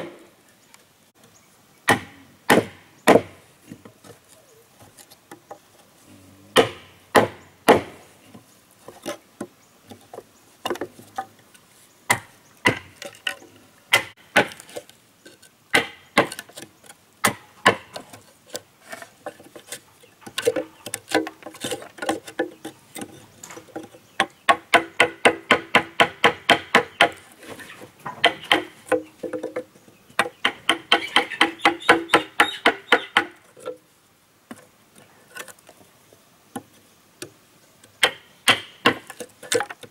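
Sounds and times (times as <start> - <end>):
hand tool striking wood: 1.9 - 3.9, 6.6 - 8.0, 12.1 - 14.9, 15.7 - 18.2, 18.9 - 27.2, 28.0 - 33.8, 38.0 - 39.9.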